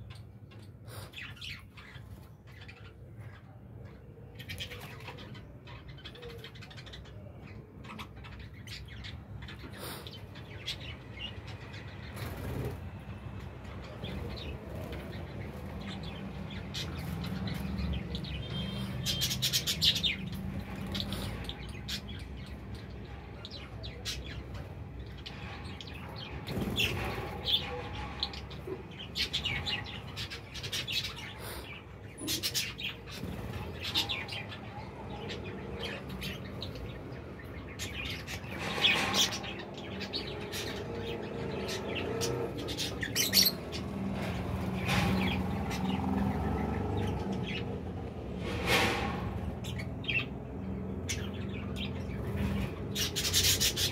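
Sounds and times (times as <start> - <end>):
budgerigars chattering and chirping: 13.6 - 47.8, 49.4 - 53.9.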